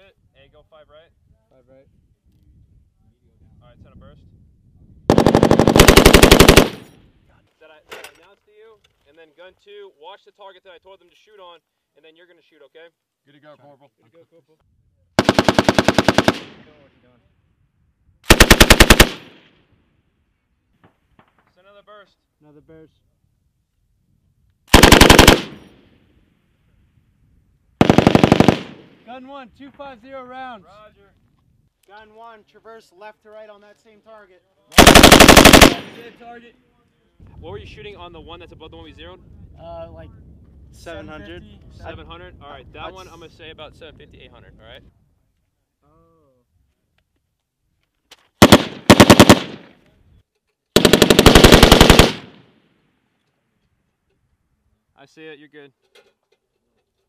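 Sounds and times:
machine gun automatic fire: 0:05.1 - 0:06.9, 0:15.2 - 0:16.6, 0:18.3 - 0:19.3, 0:24.7 - 0:25.6, 0:27.8 - 0:28.8, 0:34.8 - 0:36.1, 0:48.4 - 0:49.7, 0:50.8 - 0:52.4.

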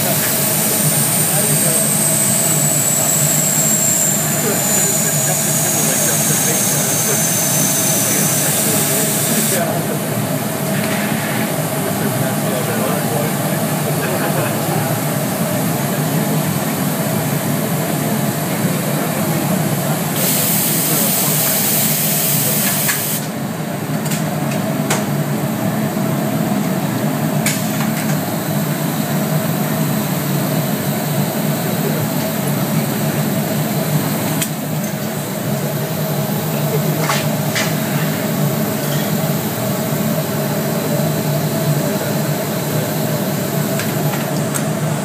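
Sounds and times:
loud hiss: 0:00.0 - 0:09.8, 0:20.2 - 0:23.3
factory machinery hum: 0:00.0 - 0:45.0.

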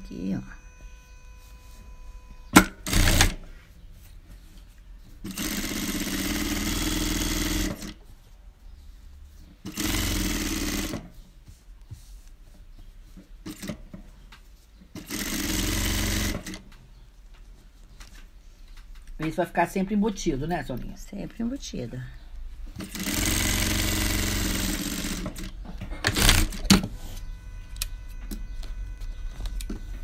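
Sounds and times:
sewing machine stitching fabric: 0:02.6 - 0:03.5, 0:05.2 - 0:08.0, 0:09.6 - 0:11.2, 0:14.9 - 0:16.7, 0:22.8 - 0:27.0.

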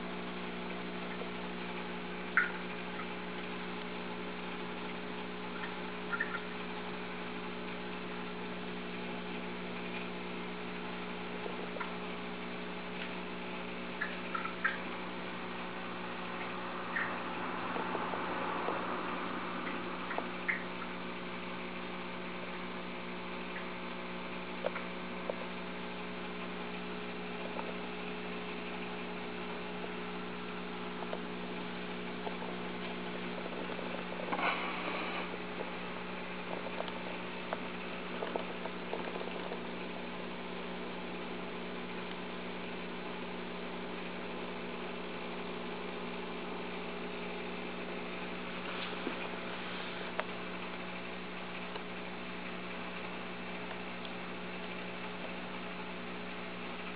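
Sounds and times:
aquarium pump humming: 0:00.0 - 0:56.9.

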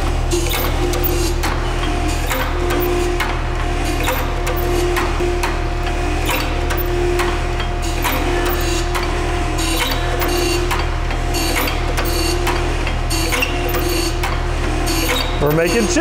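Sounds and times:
surface grinder motor hum: 0:00.0 - 0:16.0
grinding wheel scratching steel: 0:14.8 - 0:16.0.

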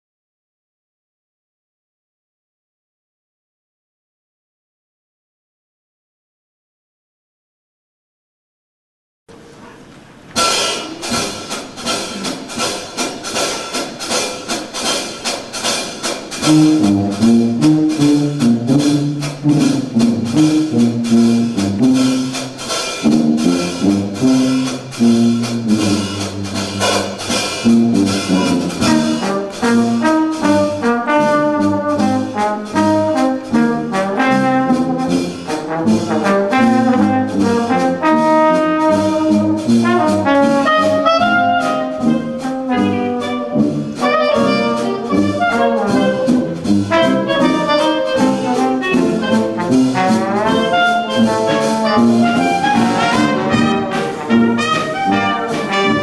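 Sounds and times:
jazz band playing: 0:09.5 - 0:56.0.

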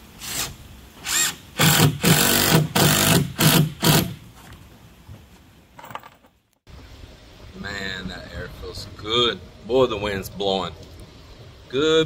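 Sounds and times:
handheld power tool bursts: 0:00.2 - 0:04.3.

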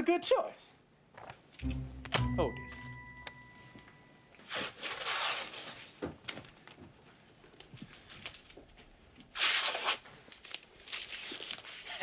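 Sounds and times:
paper rustling: 0:07.7 - 0:12.0.

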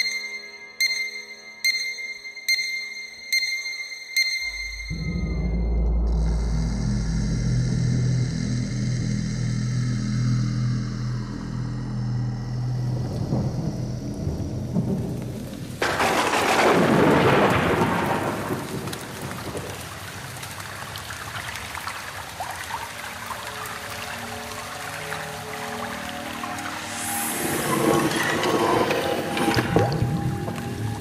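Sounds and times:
low steady drone: 0:04.4 - 0:15.8
rain patter: 0:12.5 - 0:31.0
loud thunderclap: 0:13.2 - 0:20.4.

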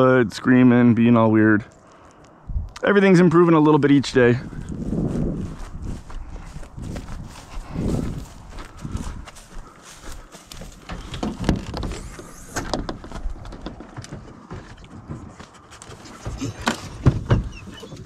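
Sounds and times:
footsteps in dry grass: 0:03.7 - 0:16.6.

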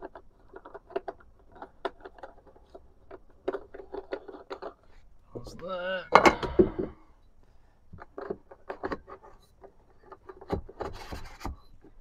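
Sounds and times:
rubbing scrape: 0:09.0 - 0:11.8.

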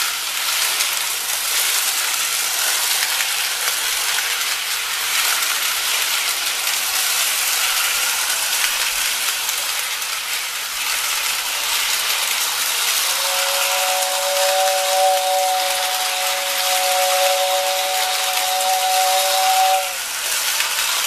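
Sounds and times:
toy train motor whirring: 0:00.0 - 0:21.0
two-tone train whistle: 0:12.7 - 0:20.5.

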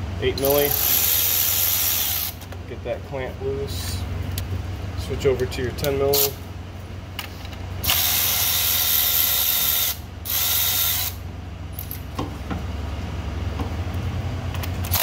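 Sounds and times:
electric ratchet whining: 0:00.5 - 0:02.4, 0:07.8 - 0:11.2.

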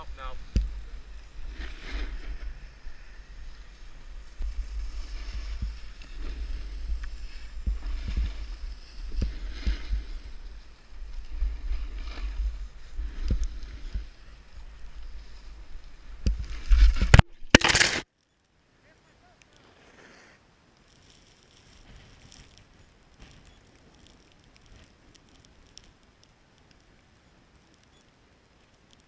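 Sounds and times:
snowboard carving on snow: 0:00.0 - 0:17.2, 0:19.6 - 0:25.0.

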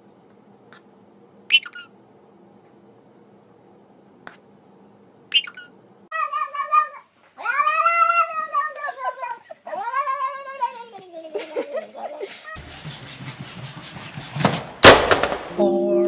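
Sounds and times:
cat yowling: 0:05.4 - 0:11.3.

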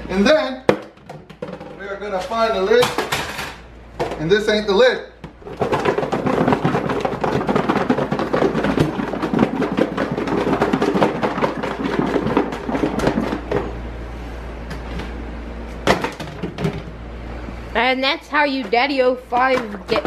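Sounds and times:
plastic container and lid clattering: 0:05.3 - 0:13.7.

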